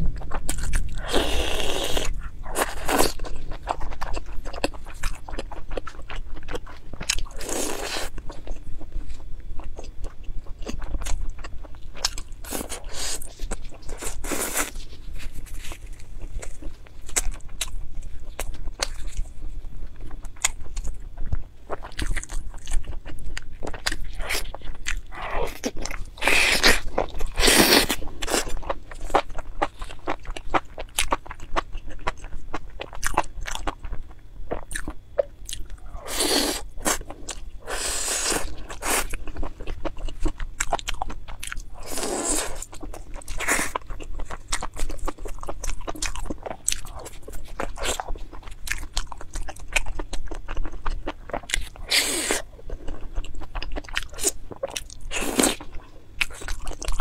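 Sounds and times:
close chewing and biting: 0.0s - 57.0s.

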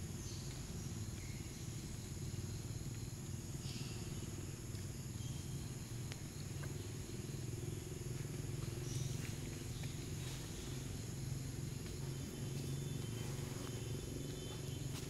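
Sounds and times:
high insect drone: 0.0s - 15.0s
steady low hum: 0.0s - 15.0s.

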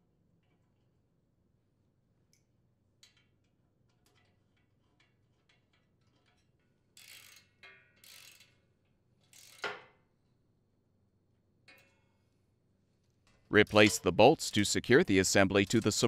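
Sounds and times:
ratchet wrench clicking: 7.0s - 9.7s.

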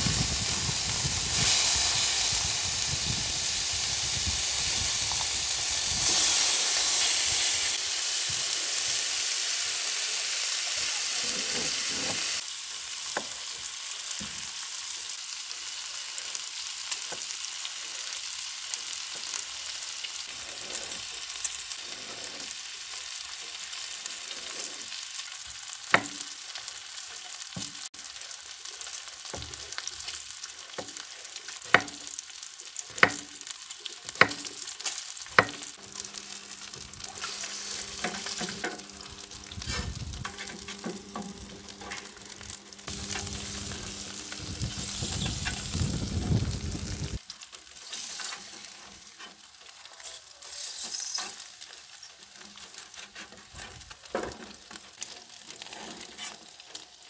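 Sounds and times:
bacon sizzling on griddle: 0.0s - 57.0s.

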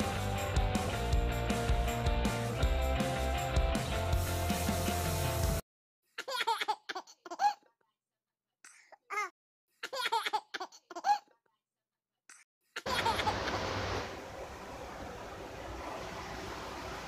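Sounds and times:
high-pitched laughter: 12.8s - 13.6s.

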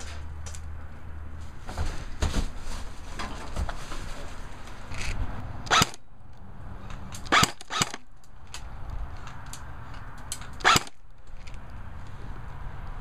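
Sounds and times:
airsoft gun shots: 5.7s - 6.0s, 7.2s - 8.1s, 10.6s - 11.0s.

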